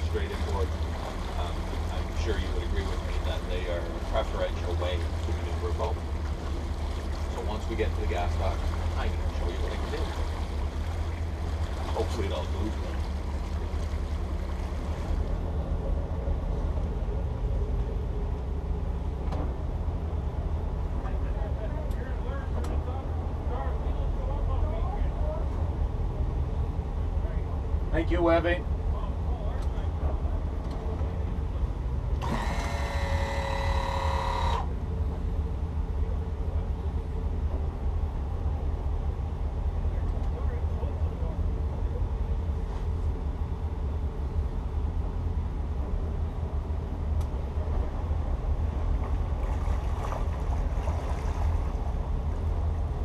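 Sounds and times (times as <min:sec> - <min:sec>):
boat engines droning: 0:00.0 - 0:53.0
high buzzy tone: 0:32.2 - 0:34.7.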